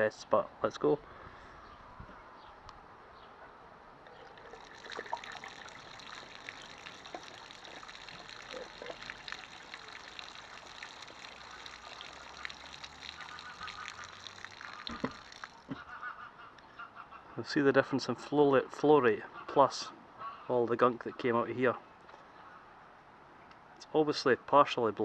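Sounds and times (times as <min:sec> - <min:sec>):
water splattering onto gravel: 0:04.1 - 0:15.7.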